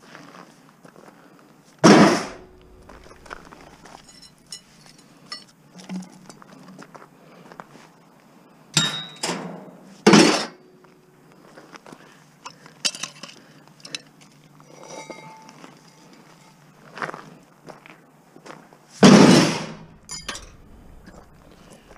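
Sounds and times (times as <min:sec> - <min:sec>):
scrap metal clanking: 0:01.9 - 0:06.9, 0:13.9 - 0:17.3, 0:19.0 - 0:21.9.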